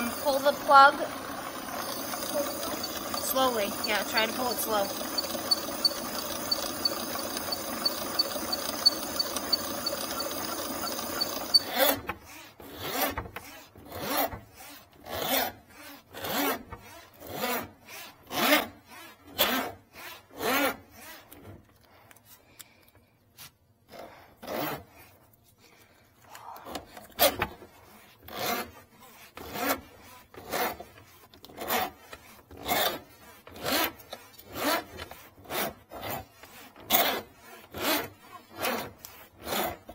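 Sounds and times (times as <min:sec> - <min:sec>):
machine hum with fast tick: 0:00.0 - 0:11.7
drain snake cable rasping: 0:00.0 - 0:13.6.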